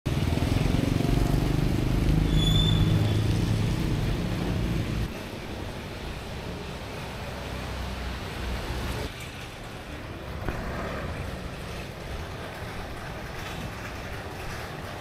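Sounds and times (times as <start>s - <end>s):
street traffic: 0.0s - 15.0s.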